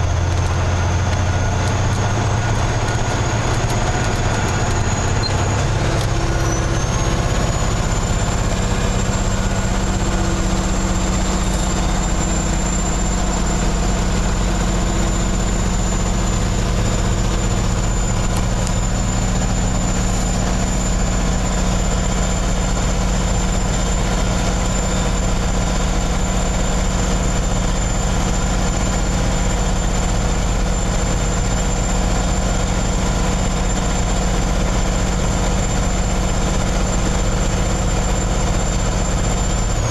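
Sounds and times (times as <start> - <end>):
truck diesel engine running: 0.0 - 39.9.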